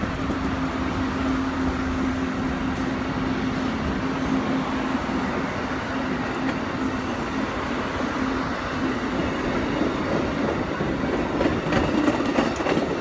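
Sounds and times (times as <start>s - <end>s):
train wheels on rails: 0.0s - 13.0s.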